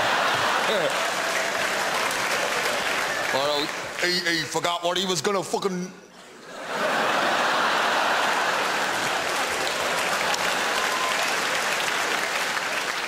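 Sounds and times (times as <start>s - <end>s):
audience applause: 0.0s - 4.5s, 7.1s - 13.0s.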